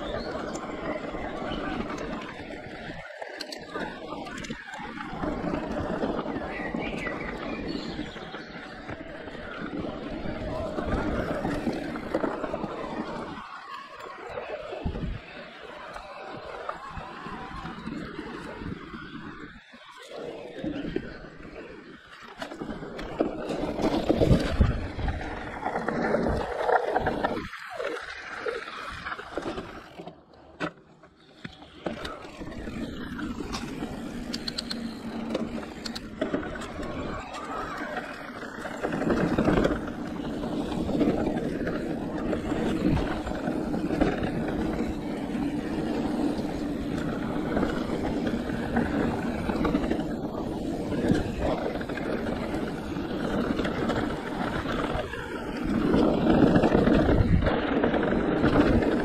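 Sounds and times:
bike tyres rolling over dirt: 0:00.0 - 0:59.0
bike frame and chain rattle: 0:31.3 - 0:59.0.

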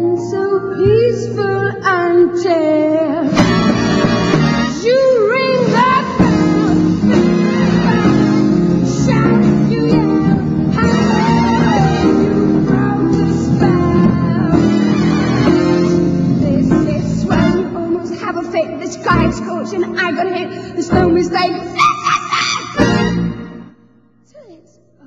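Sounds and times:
song with singing voice: 0:00.0 - 0:23.4
instrumental accompaniment: 0:03.2 - 0:19.6.

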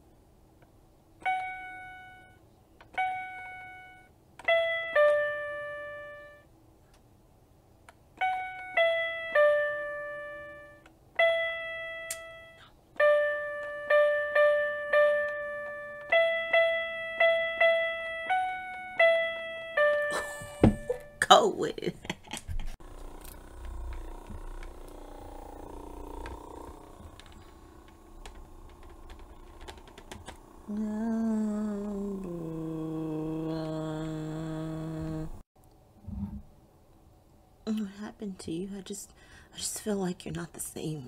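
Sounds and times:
toy keyboard playing a tune: 0:01.2 - 0:06.4, 0:08.2 - 0:20.2.

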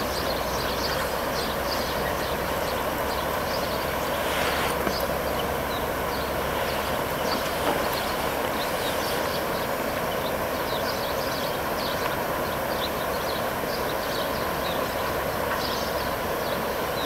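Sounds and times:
river rushing: 0:00.0 - 0:17.0
small birds chirping: 0:00.0 - 0:17.0.

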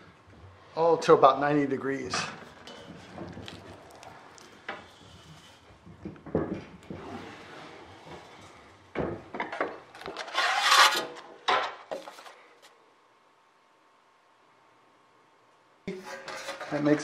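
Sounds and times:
sharp knocks and clunks: 0:05.8 - 0:07.1.

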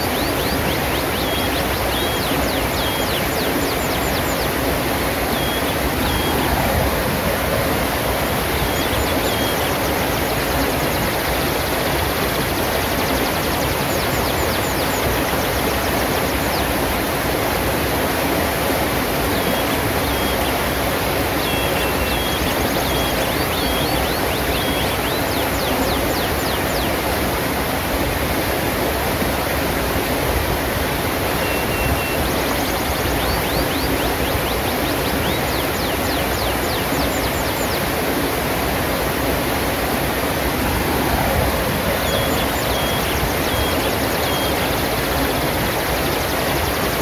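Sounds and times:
small birds chirping: 0:00.0 - 0:07.1, 0:08.0 - 0:16.9, 0:19.3 - 0:27.0, 0:31.3 - 0:38.1, 0:40.1 - 0:47.0
river rushing over boulders: 0:00.0 - 0:47.0.

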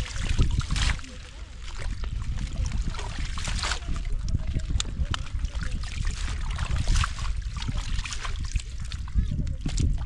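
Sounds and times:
steady low rumble: 0:00.0 - 0:10.0
water splashing and trickling: 0:00.0 - 0:10.0.

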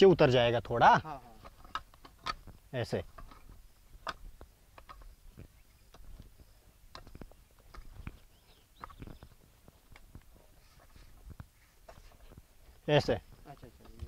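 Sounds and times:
wooden rake scraping soil: 0:10.4 - 0:12.9.

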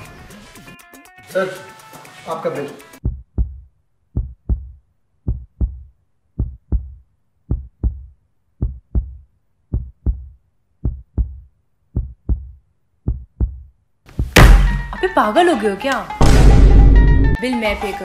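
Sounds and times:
heartbeat thumps: 0:03.0 - 0:14.9.

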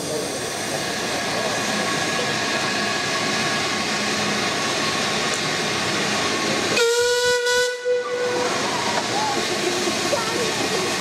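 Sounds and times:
steam whistle: 0:06.8 - 0:09.0.

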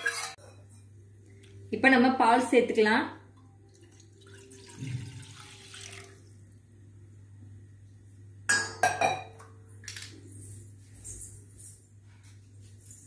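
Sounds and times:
milk pouring into frying pan: 0:03.7 - 0:06.5.

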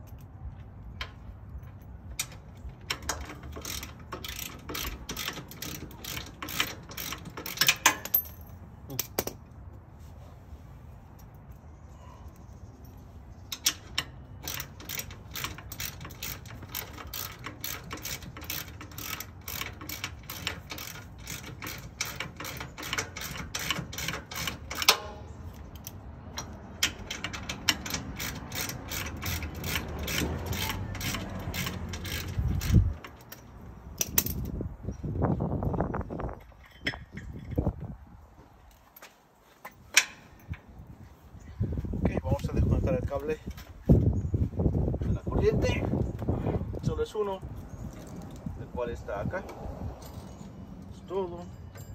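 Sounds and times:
ratchet wrench clicking: 0:02.2 - 0:08.2, 0:13.5 - 0:34.5.

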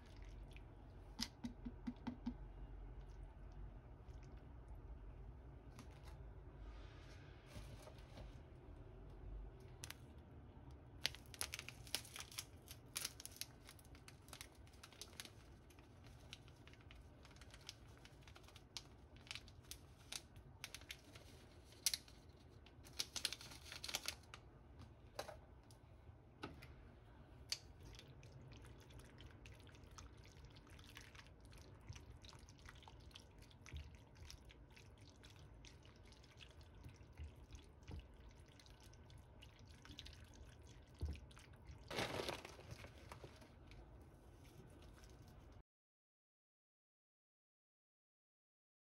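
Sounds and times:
plastic sachet crinkling and tearing: 0:11.0 - 0:24.4, 0:41.9 - 0:43.4.

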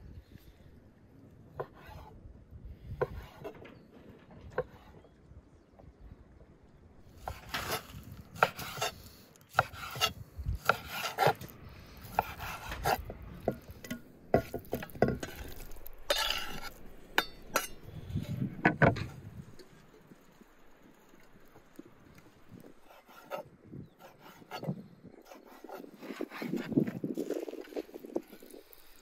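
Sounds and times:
knife slicing meat: 0:07.3 - 0:13.1.

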